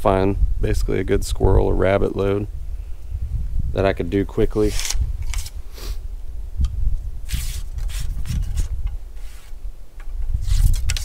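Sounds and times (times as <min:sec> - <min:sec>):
ramrod scraping down a gun barrel: 0:04.6 - 0:05.6, 0:07.3 - 0:09.5, 0:10.4 - 0:11.0.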